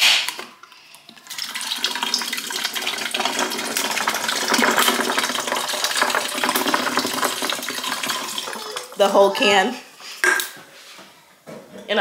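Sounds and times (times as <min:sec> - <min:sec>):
drink pouring over ice: 0:01.2 - 0:09.0.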